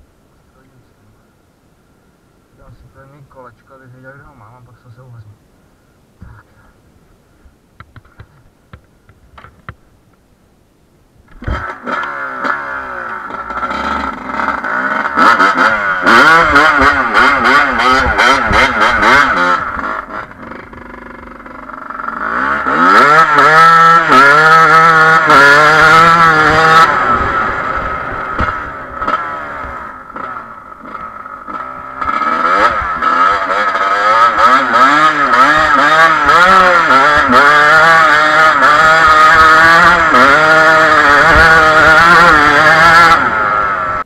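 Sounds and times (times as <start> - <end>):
dirt bike engine revving: 11.3 - 44.0.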